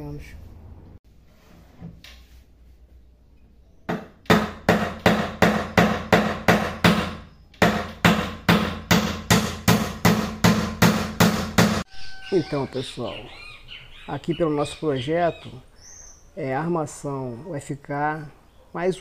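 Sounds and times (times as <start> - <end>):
hammer driving nails into wood: 3.9 - 11.8.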